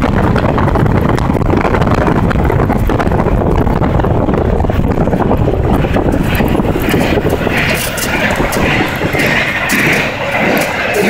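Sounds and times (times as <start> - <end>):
wind and road noise: 0.0 - 11.0
wind buffeting microphone: 0.0 - 11.0
hissing: 6.1 - 11.0.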